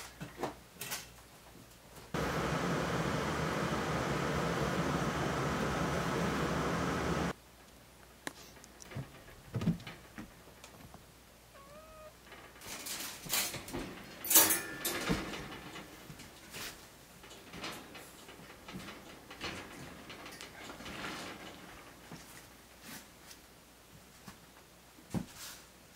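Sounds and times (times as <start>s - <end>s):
cat meowing: 11.5s - 12.2s
wire pet cage rattling: 11.6s - 22.4s.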